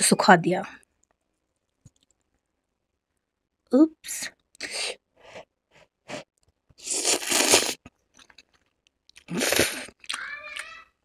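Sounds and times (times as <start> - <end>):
slurping noodles: 6.1 - 7.9, 9.2 - 10.0.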